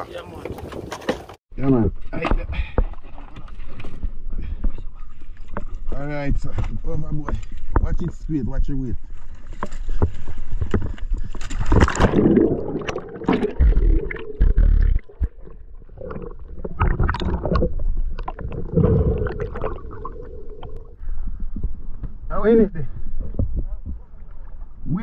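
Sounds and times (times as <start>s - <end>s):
person splashing into water: 11.4s - 20.7s
muffled underwater gurgling: 12.1s - 21.0s.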